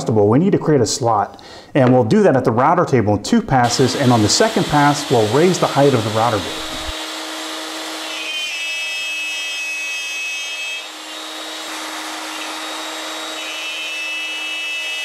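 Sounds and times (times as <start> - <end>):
router cutting wood: 3.6 - 15.0.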